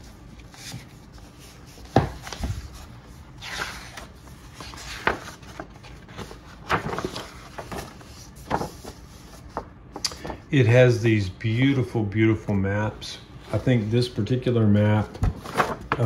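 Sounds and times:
paper map rustling and crackling: 0.0s - 10.5s, 13.4s - 16.0s.

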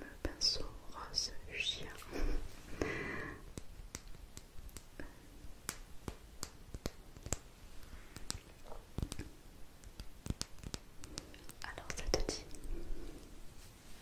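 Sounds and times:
soft clicks and taps: 3.5s - 12.8s.

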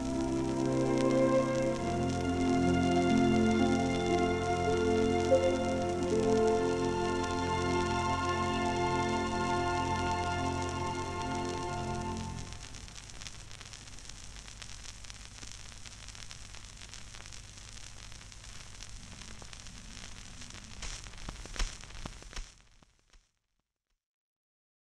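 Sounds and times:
record hiss and crackle: 0.0s - 23.6s
record clicks: 18.8s - 22.6s.

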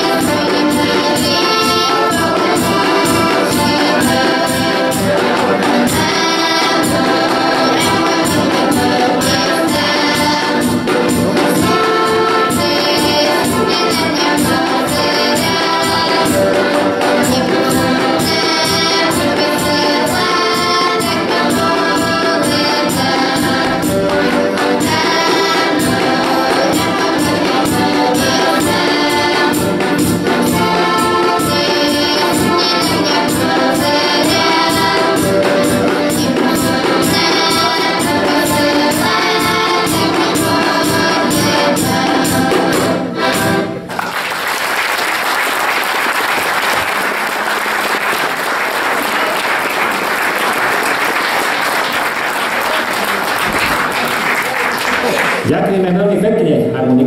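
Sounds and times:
accordion ensemble playing folk music: 0.0s - 56.3s
audience applause: 43.9s - 55.5s.

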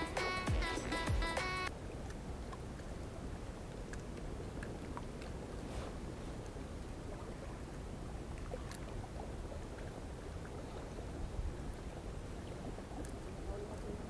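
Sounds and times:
sea on rocky shore: 0.0s - 14.0s
wind: 0.0s - 14.0s
faint clicks: 13.0s - 13.9s.

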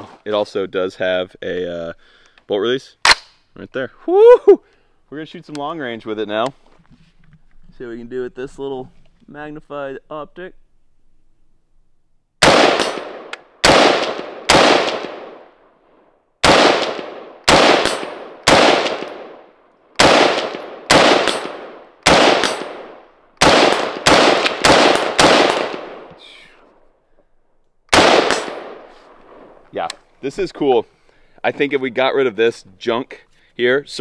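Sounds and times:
rifle shots with echo: 12.4s - 15.6s, 16.4s - 26.2s, 27.9s - 29.6s.

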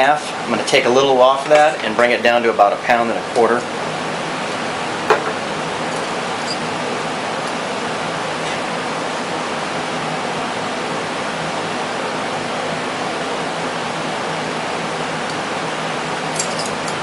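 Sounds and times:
small metal parts clicking: 16.4s - 17.0s.

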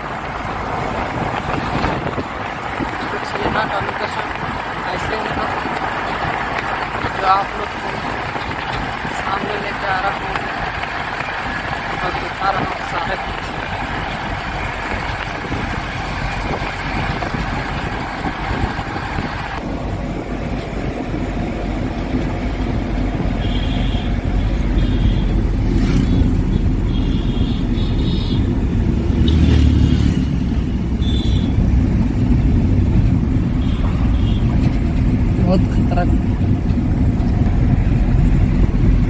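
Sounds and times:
wind rushing: 0.0s - 26.9s
car engine and tyre rumble: 0.0s - 39.0s.

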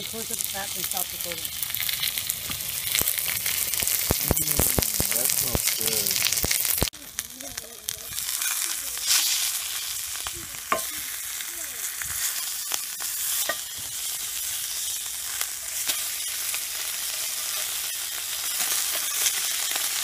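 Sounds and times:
meat sizzling in skillet: 0.0s - 20.0s
metal spatula scraping pan: 8.1s - 9.9s, 12.0s - 19.9s.

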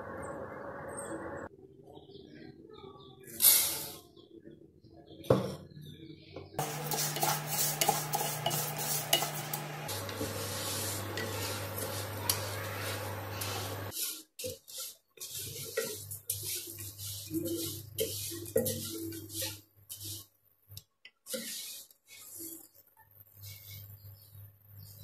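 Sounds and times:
lentils scraping in pan: 6.6s - 20.4s, 21.2s - 24.0s.

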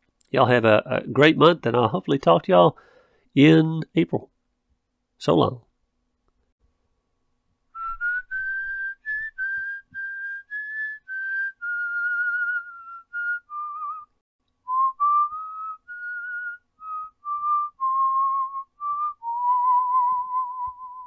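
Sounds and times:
person whistling a tune: 7.8s - 14.1s, 14.7s - 21.0s.

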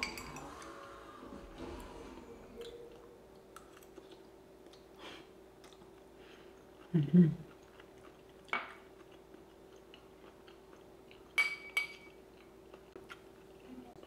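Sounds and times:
faint chewing: 2.6s - 11.4s, 12.2s - 14.0s
cutlery clinking on plate: 11.4s - 12.2s.

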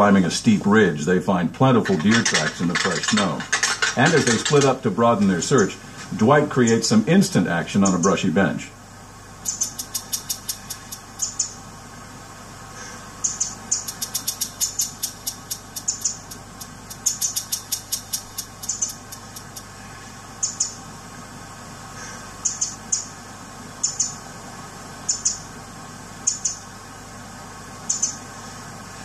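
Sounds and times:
rapid sharp clicks: 1.8s - 4.8s, 9.4s - 11.4s, 13.7s - 19.7s.

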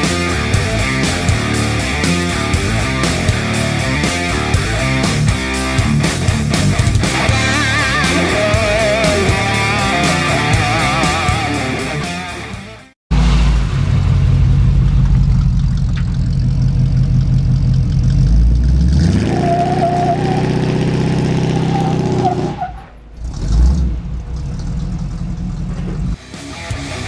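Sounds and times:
pickup truck engine idling and revving: 0.0s - 11.8s, 13.1s - 27.0s.

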